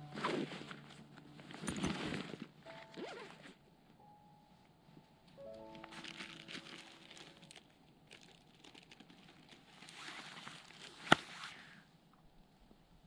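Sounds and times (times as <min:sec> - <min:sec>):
plastic bag crinkling: 0:05.5 - 0:11.2.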